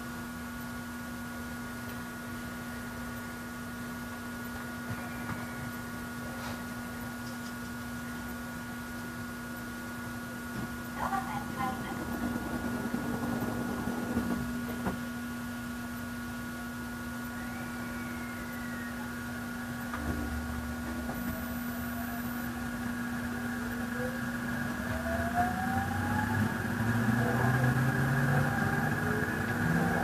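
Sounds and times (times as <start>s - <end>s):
steady low hum: 0.0s - 30.0s
traction motor whine: 2.4s - 7.1s, 10.8s - 30.0s.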